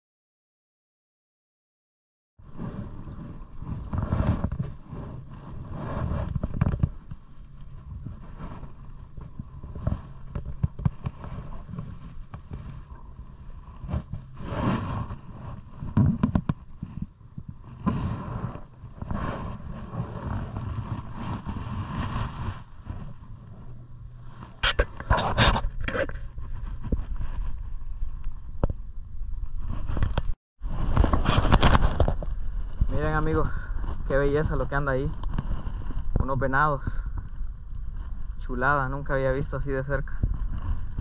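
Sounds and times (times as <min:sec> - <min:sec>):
wind rumbling on microphone: 0:02.4 - 0:41.0.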